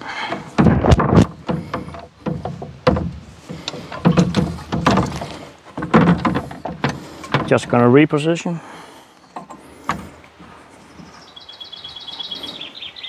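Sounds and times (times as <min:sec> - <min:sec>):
motor knocking and scraping on bin: 0:00.3 - 0:07.8.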